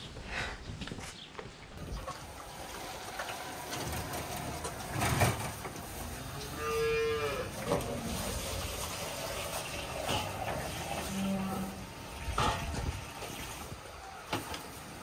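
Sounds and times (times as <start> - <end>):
farm background noise: 0.0 - 15.0
calf mooing: 6.1 - 8.2, 10.6 - 11.9.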